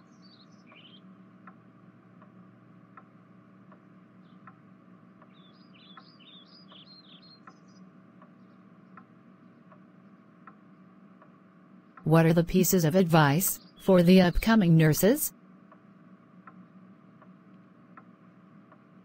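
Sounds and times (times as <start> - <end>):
faint bird chirps: 0.0 - 1.1, 5.3 - 8.7
low steady hum: 0.0 - 19.0
soft ticks: 1.4 - 1.6, 2.2 - 4.6, 5.2 - 10.6, 11.2 - 12.1, 16.4 - 18.9.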